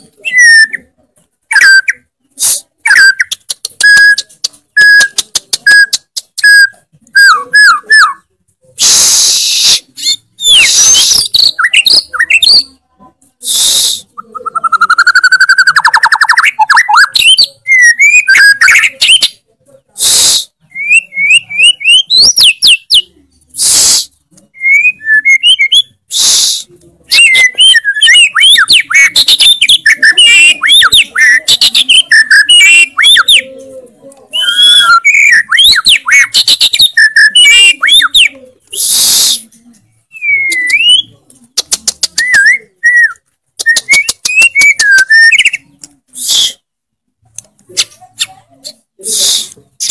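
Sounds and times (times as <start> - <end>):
songbird singing: 14.2 - 19.4, 27.1 - 38.8, 39.8 - 45.9.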